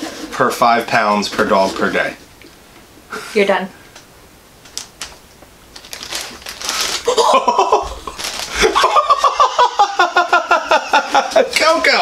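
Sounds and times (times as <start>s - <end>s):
man and woman laughing: 7.0s - 11.6s.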